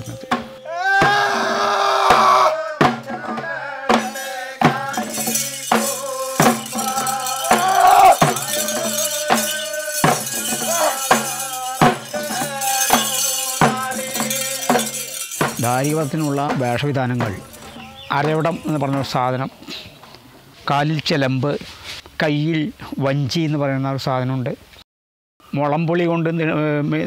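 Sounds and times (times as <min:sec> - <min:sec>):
drum beating evenly: 0:00.0 - 0:19.3
person singing wavering melody: 0:00.0 - 0:19.3
metal bells jingling: 0:03.9 - 0:19.6.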